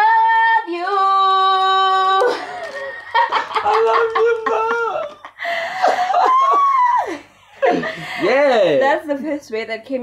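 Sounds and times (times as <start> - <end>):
man and woman laughing: 2.3 - 8.5.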